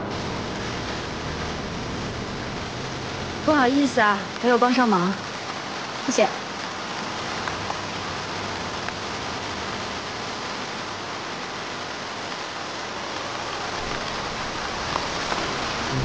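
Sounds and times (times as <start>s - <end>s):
low rumble: 0.0s - 4.4s, 13.8s - 16.0s
rain on wet pavement: 0.0s - 16.0s.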